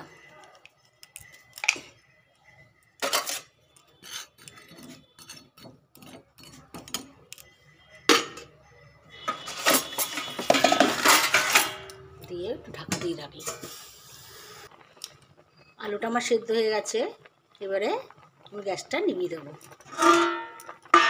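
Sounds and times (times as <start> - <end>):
metal spoon scraping a pot: 3.0 - 7.4, 9.2 - 12.1, 19.6 - 21.0
metal clattering: 9.3 - 12.0, 19.8 - 21.0.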